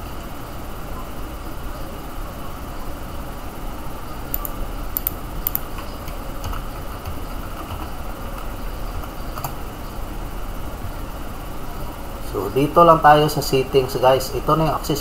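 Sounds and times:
low background hum: 0:00.0 - 0:15.0
keyboard key clicks: 0:04.3 - 0:07.9.

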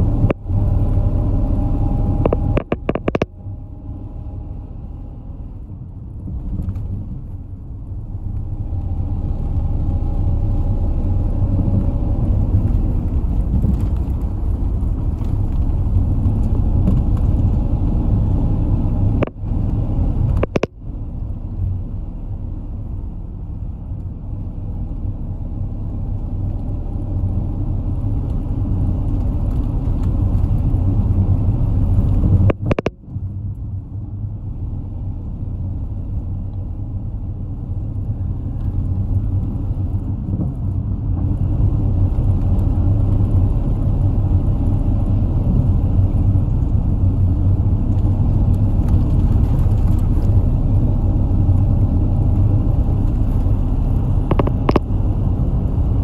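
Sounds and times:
bus engine and road rumble: 0:00.0 - 0:56.0
sharp click: 0:20.4 - 0:20.8.

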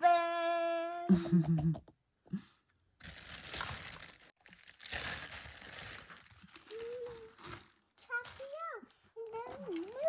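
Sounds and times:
plastic bag crinkling: 0:03.0 - 0:10.0.

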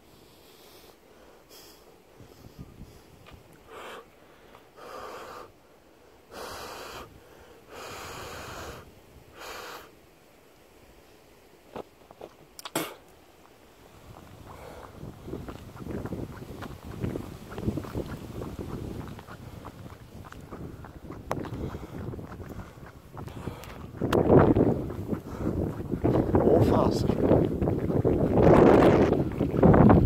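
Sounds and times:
person breathing: 0:00.0 - 0:10.0, 0:14.5 - 0:15.0, 0:21.4 - 0:23.9, 0:25.2 - 0:25.7.

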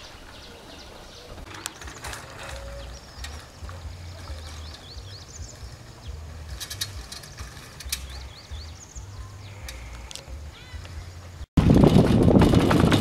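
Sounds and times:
birds chirping: 0:00.0 - 0:11.5
wind rumble on microphone: 0:10.9 - 0:13.0.

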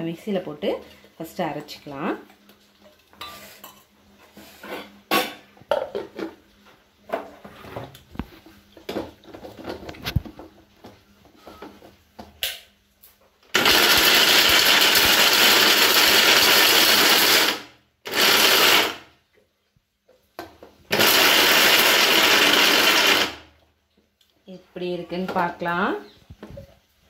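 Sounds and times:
electric mixer grinder running: 0:13.5 - 0:19.1, 0:20.9 - 0:23.5.

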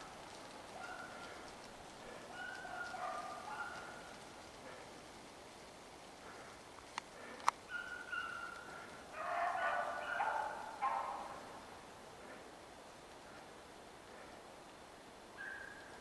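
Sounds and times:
distant hounds baying: 0:00.2 - 0:05.2, 0:06.1 - 0:12.6, 0:15.3 - 0:16.0
sharp clicks: 0:06.8 - 0:07.6.

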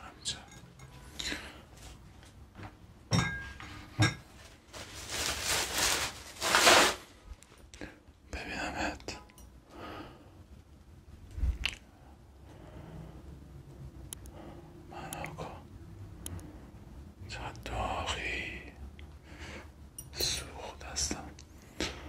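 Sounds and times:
rustling brushing noise: 0:04.3 - 0:07.3.

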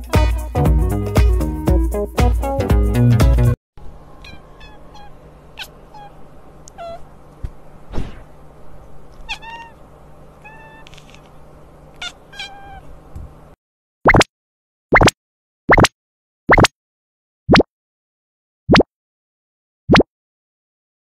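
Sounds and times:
cat chirping meows: 0:04.2 - 0:07.2, 0:09.2 - 0:13.0
thump: 0:07.9 - 0:08.3.

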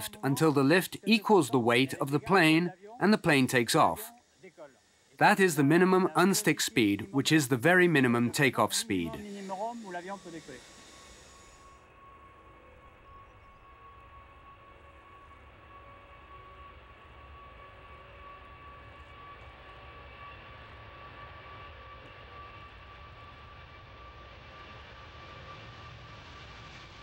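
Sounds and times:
jet engine rushing roar: 0:00.0 - 0:11.7
jet engine fan whine: 0:00.0 - 0:27.0.

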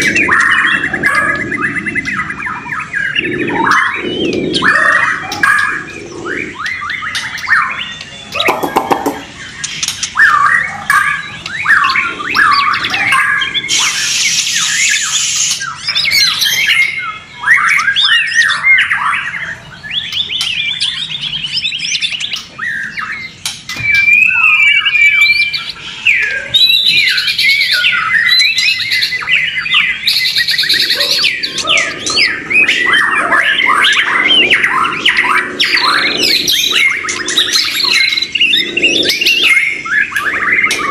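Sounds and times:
songbirds singing: 0:00.0 - 0:40.9.

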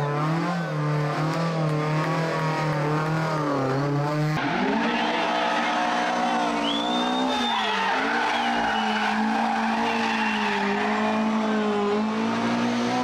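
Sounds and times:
car engine at high revs: 0:00.0 - 0:13.0
tyres squealing: 0:04.5 - 0:11.4.

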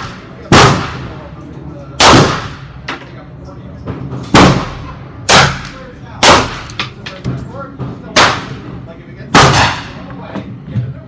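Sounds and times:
gunshots with ringing echo: 0:00.0 - 0:01.2, 0:02.0 - 0:02.6, 0:04.4 - 0:06.7, 0:09.4 - 0:10.0.

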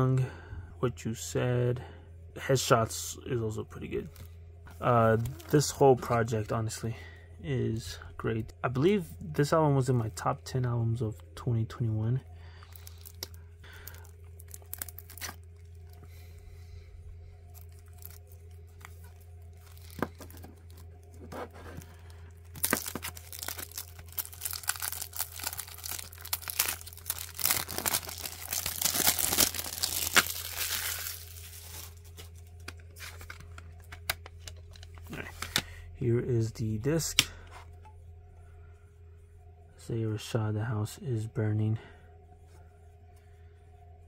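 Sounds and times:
plastic wrap crinkling and tearing: 0:12.7 - 0:16.0, 0:17.5 - 0:34.8.

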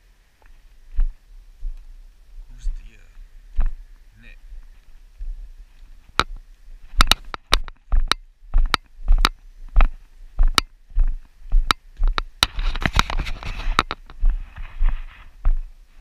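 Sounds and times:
footsteps knocking: 0:07.0 - 0:12.3
short rustle: 0:12.5 - 0:16.0.

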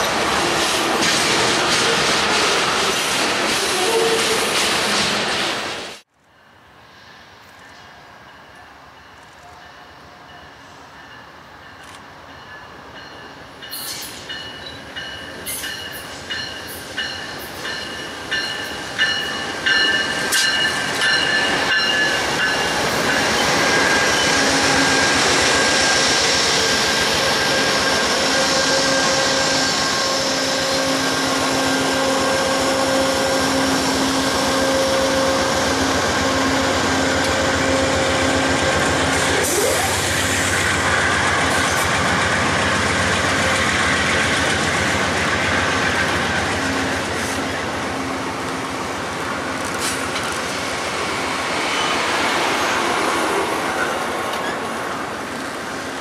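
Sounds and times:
train wheels rumbling on rail: 0:00.0 - 0:06.4, 0:07.0 - 0:56.0.

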